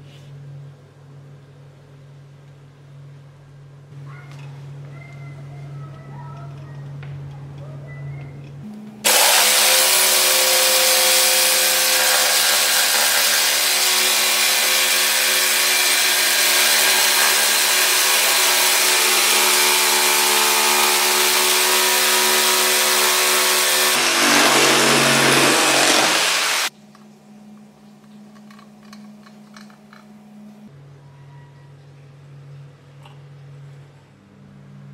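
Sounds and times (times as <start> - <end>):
jigsaw cutting board: 9.1 - 26.7.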